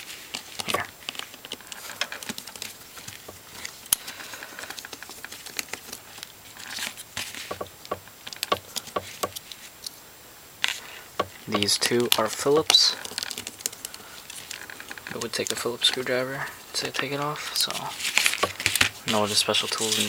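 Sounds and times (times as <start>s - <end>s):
phone handling rustling: 0.0s - 10.0s, 10.6s - 20.0s
screwdriver clicks and scrapes: 0.6s - 10.0s.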